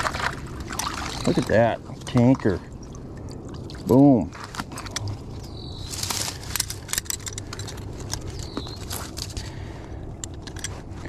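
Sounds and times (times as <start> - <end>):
metal trap and chain clinking: 5.9 - 9.4.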